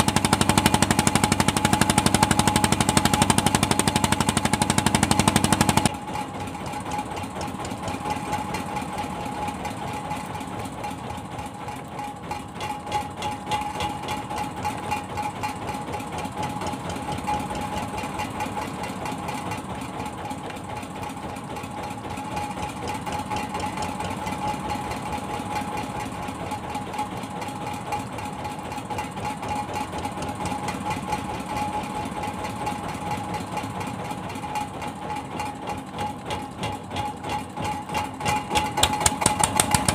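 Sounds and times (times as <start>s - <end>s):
boat engine idling: 0.0s - 39.9s.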